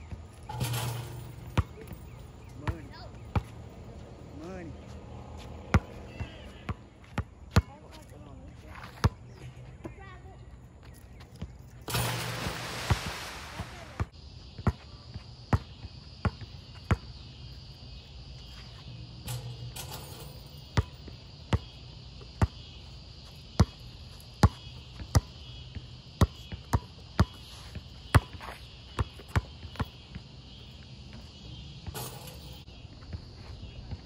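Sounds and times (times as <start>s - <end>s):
basketball bouncing on asphalt: 0.0s - 10.3s, 13.6s - 17.4s, 20.6s - 33.3s.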